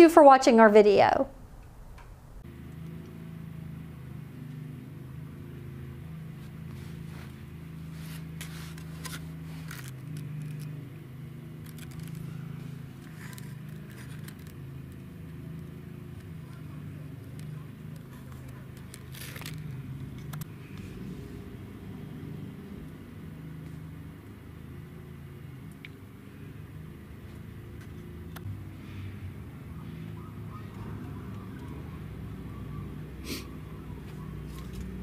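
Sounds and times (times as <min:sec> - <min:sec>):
steady low hum: 0:00.0 - 0:35.0
light scrapes and clicks: 0:06.7 - 0:10.7.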